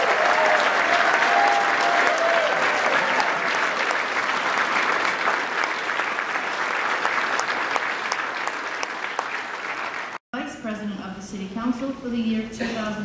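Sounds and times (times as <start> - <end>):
large crowd applauding: 0.0 - 10.2.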